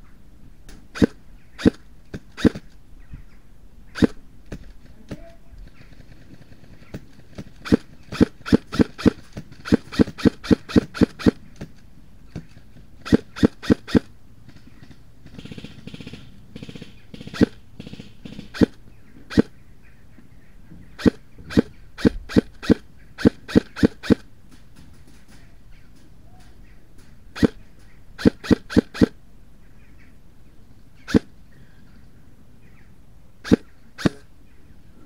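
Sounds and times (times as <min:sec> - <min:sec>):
airsoft rifle firing sharp pops: 0:06.8 - 0:11.7.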